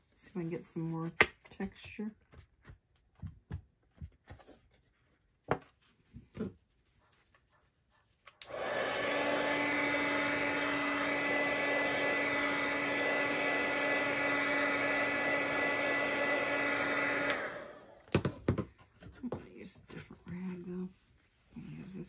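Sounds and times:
electric heat tool blowing: 8.4s - 18.1s.

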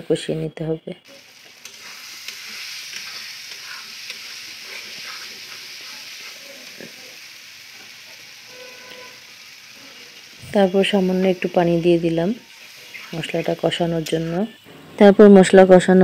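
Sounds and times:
masala sizzling in a pan: 0.0s - 16.0s
metal spatula scraping a pan: 1.1s - 7.1s, 7.8s - 10.4s, 12.4s - 15.0s.

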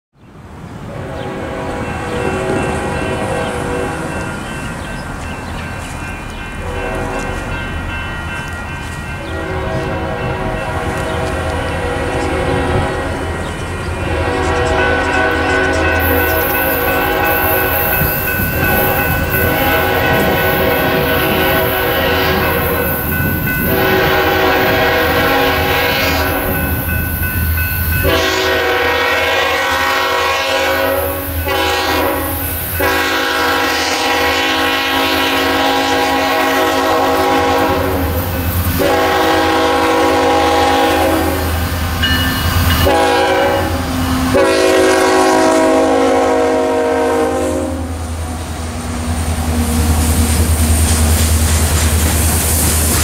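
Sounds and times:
locomotive air horn blasts: 0.9s - 4.2s, 6.6s - 7.5s, 9.3s - 13.3s, 14.0s - 26.7s, 28.0s - 41.6s, 42.7s - 48.0s
diesel locomotive rumble: 8.8s - 53.0s.

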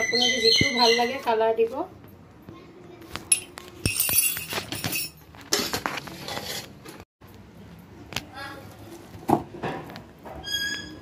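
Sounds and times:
cookware scraping and rustling: 3.2s - 7.0s.

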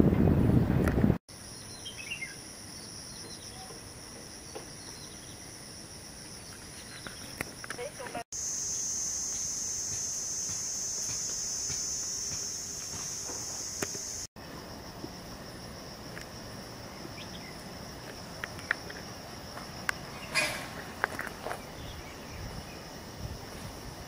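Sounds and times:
insects calling: 1.3s - 24.0s.

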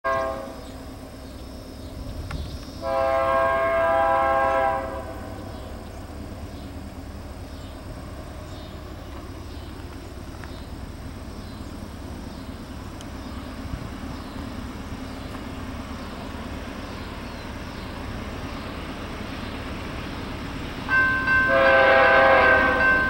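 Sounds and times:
locomotive air horn blast: 0.0s - 0.7s, 2.8s - 5.5s, 21.4s - 23.0s
locomotive low rumble: 0.1s - 23.0s.

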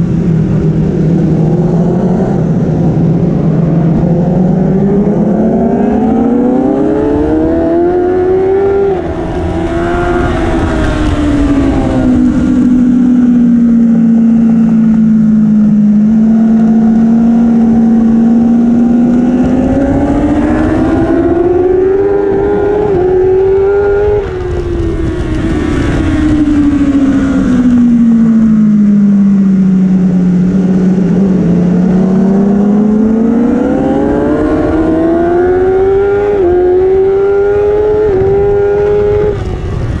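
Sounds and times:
motorcycle engine racing: 0.0s - 40.0s
wind on microphone: 0.0s - 40.0s.

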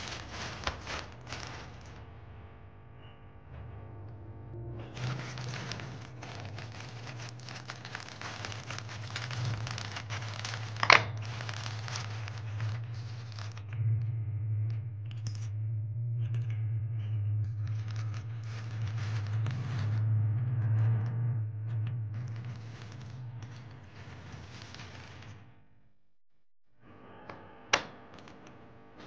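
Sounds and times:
plastic bag crinkling: 0.0s - 2.0s, 4.9s - 13.6s.

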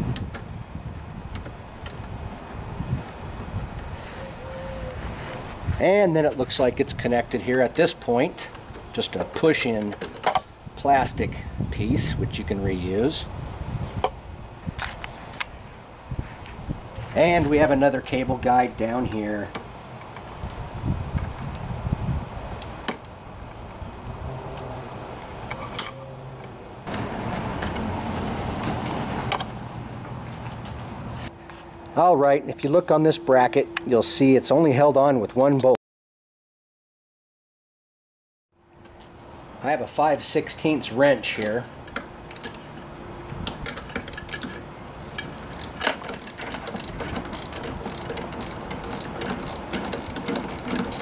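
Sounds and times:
cable guide clicks and rattles: 7.3s - 10.4s, 41.2s - 51.0s
steady low hum: 29.4s - 34.9s
ratchet wrench clicking: 42.3s - 42.7s, 45.2s - 51.0s.

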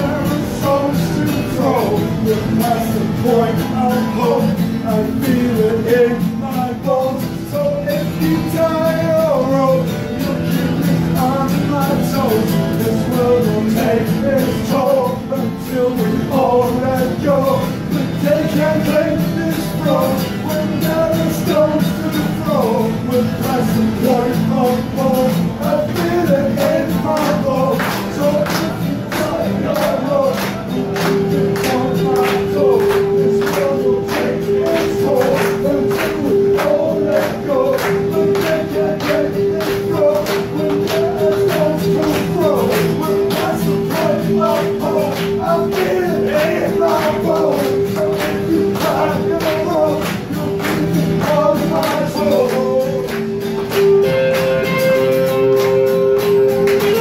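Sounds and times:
live rock band playing: 53.1s - 57.0s.

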